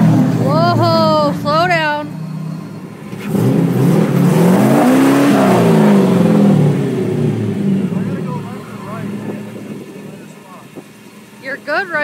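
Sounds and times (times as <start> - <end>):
pickup engine revving: 0.0 - 12.0.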